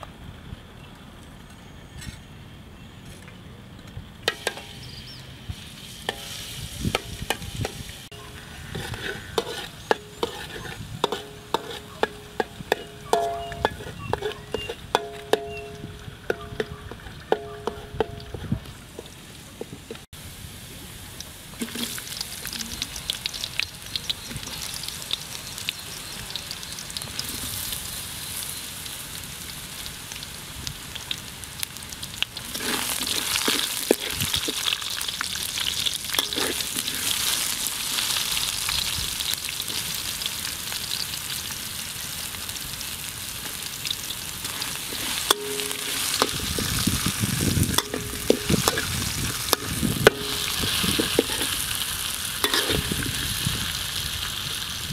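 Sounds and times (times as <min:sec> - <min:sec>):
oil sizzling in a wok: 0:04.2 - 0:54.9
metal spatula scraping a pan: 0:04.3 - 0:04.9, 0:06.0 - 0:18.6, 0:32.5 - 0:34.8, 0:36.1 - 0:37.6, 0:44.4 - 0:51.8, 0:52.4 - 0:53.4.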